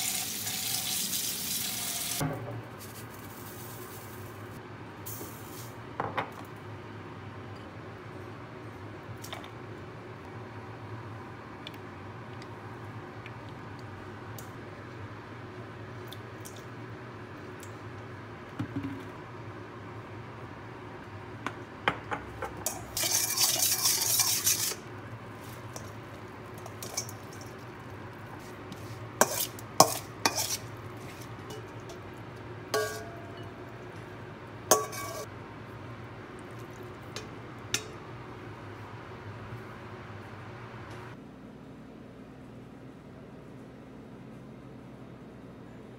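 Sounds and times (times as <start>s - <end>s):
spoon scraping metal bowl: 22.7s - 24.8s, 28.8s - 31.7s, 34.7s - 35.3s.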